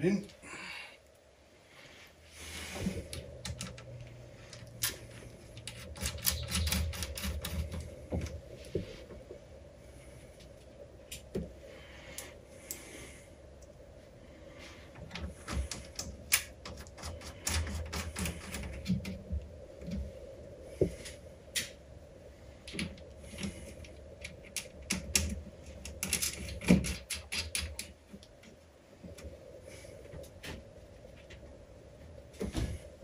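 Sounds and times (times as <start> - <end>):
small tools clicking and tapping: 5.6 - 8.4, 22.7 - 28.3.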